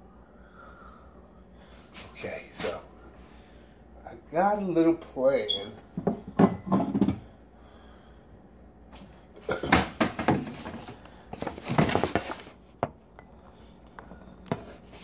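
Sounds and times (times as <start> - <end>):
containers and dishes clattering: 6.0 - 7.2.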